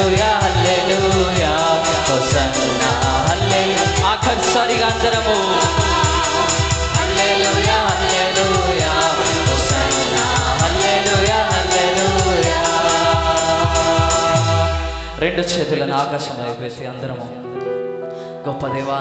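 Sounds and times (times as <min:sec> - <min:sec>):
group singing gospel song: 0:00.0 - 0:15.2
steady beat: 0:00.0 - 0:16.0
keyboard accompaniment: 0:00.0 - 0:19.0.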